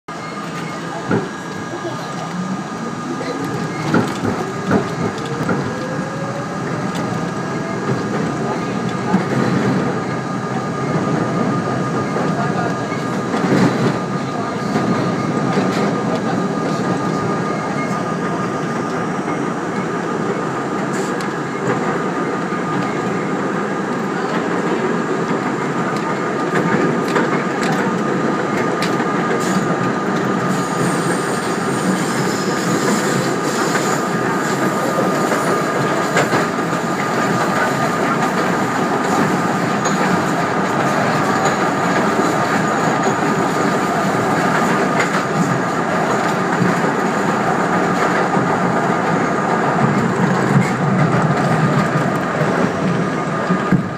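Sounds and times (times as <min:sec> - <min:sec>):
train running rumble: 0:00.1 - 0:53.9.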